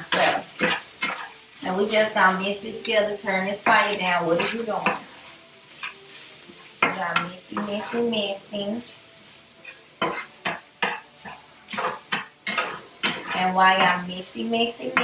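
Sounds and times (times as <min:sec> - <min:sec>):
meat sizzling: 0:00.0 - 0:15.0
spatula scraping a pan: 0:00.0 - 0:15.0.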